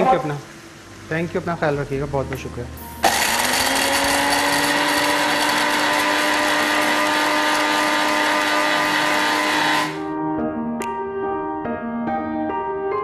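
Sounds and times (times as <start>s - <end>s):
electric grinder motor: 3.0s - 10.1s.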